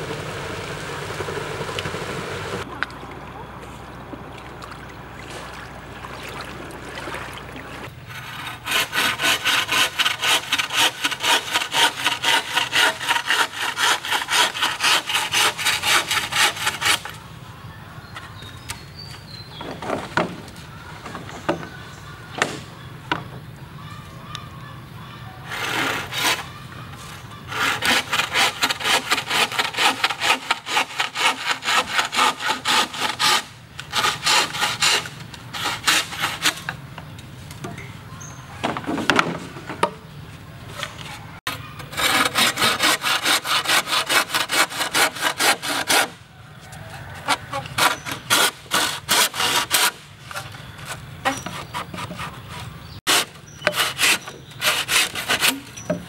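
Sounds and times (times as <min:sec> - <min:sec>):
bow saw cutting bamboo: 0:08.0 - 0:17.2, 0:25.4 - 0:36.8, 0:41.5 - 0:46.2, 0:47.3 - 0:56.0.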